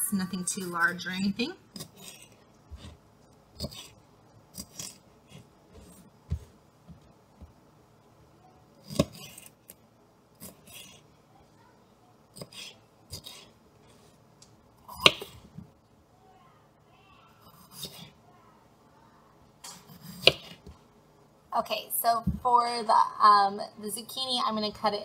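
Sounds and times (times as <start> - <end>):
knife cutting on plastic board: 3.6 - 6.4, 8.8 - 9.7, 10.4 - 11.0, 19.8 - 20.7.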